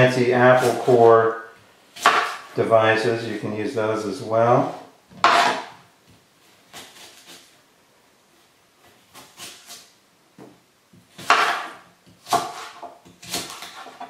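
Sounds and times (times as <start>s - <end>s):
knife cutting apple: 0.2s - 2.6s, 5.2s - 5.8s, 6.4s - 7.6s, 8.8s - 10.0s, 10.9s - 14.0s
knife chopping on board: 2.0s - 2.4s, 5.2s - 5.7s, 11.1s - 14.0s.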